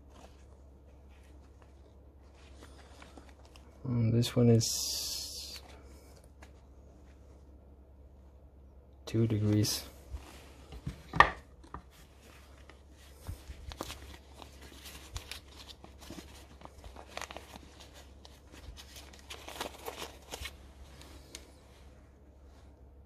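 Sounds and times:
paper wrapping rustling: 0.0s - 7.2s, 11.6s - 22.0s.

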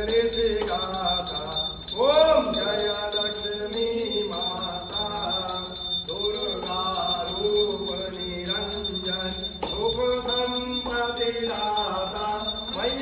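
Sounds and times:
bell ringing: 0.0s - 13.0s
person singing devotional song: 0.0s - 13.0s.

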